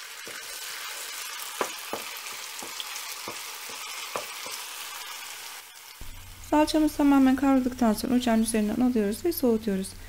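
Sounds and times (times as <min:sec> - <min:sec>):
paste sizzling in a pan: 0:00.0 - 0:07.7.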